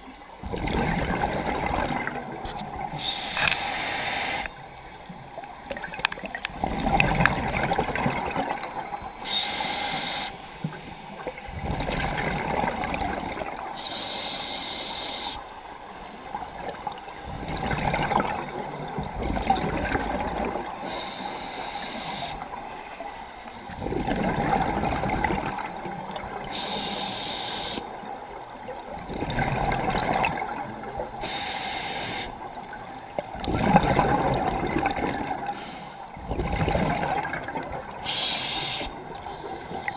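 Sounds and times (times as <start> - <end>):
regulator hissing inhale: 2.9 - 4.6, 9.2 - 11.2, 13.7 - 15.5, 20.8 - 22.6, 26.5 - 27.9, 31.2 - 32.4, 35.5 - 36.2, 38.0 - 39.9.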